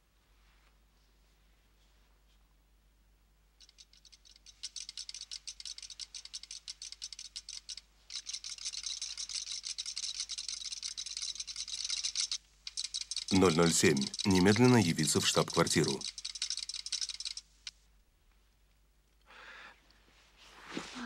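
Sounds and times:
rapid clicking chatter of printing: 4.0 - 17.4.

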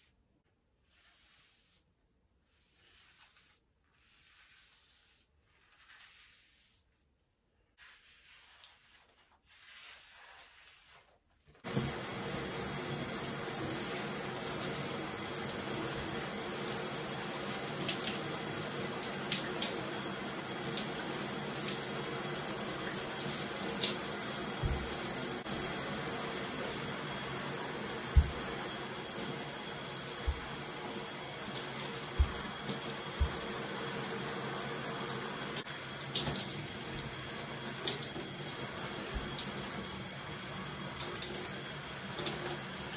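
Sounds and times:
shower spray running: 11.6 - 42.9
short low thumps: 24.6 - 25.0, 28.1 - 28.6, 32.2 - 32.5.

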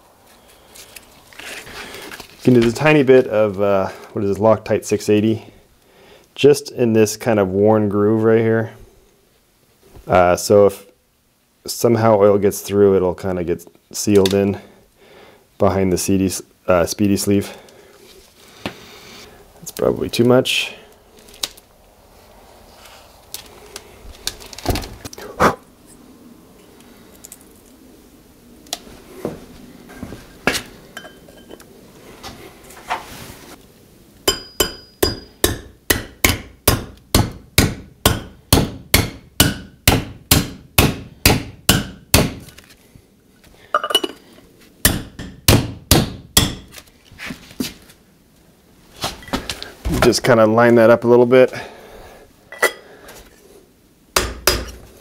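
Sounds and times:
hammer striking metal cup: 34.3 - 37.3, 54.2 - 54.8.

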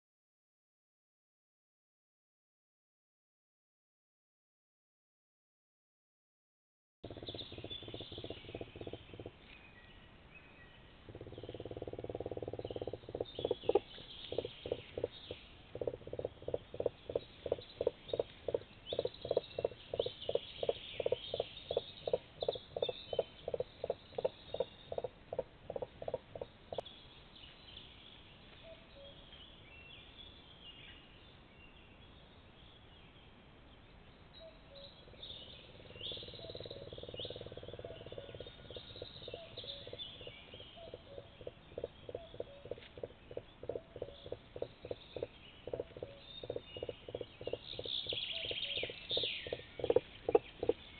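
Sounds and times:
songbirds chirping: 7.0 - 50.9
crane pulsed calls: 11.1 - 26.8, 35.6 - 50.9.

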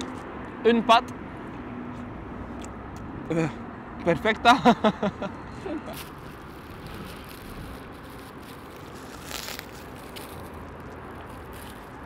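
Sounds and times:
short rustle: 6.0 - 12.0.

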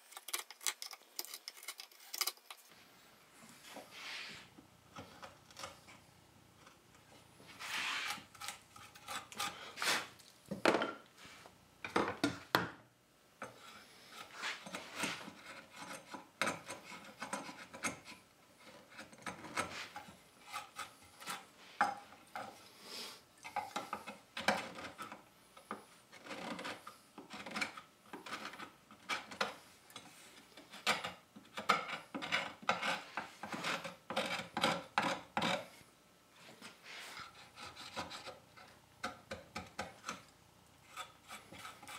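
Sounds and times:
gouge scraping wood: 7.5 - 10.2, 13.5 - 21.5, 36.8 - 38.7, 40.8 - 41.9.

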